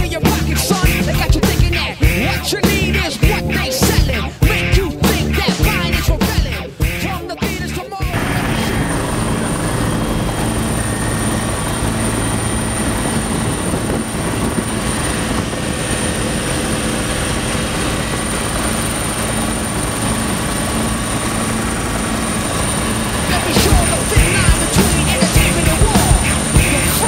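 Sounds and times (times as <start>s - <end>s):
music: 0.0s - 10.3s, 23.2s - 27.0s
helicopter rotor and turbine: 0.0s - 27.0s.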